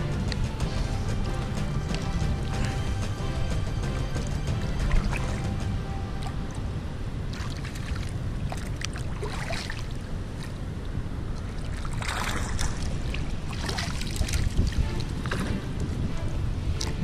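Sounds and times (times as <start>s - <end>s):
steady low rumble: 0.0s - 17.0s
water sloshing and splashing: 4.1s - 17.0s.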